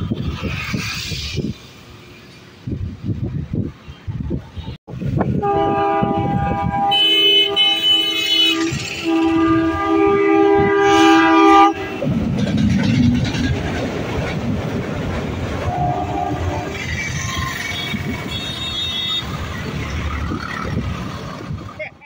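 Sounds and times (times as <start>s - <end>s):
diesel train rumbling past: 0.0s - 22.0s
train air horn blasts: 5.4s - 12.2s, 15.6s - 16.8s.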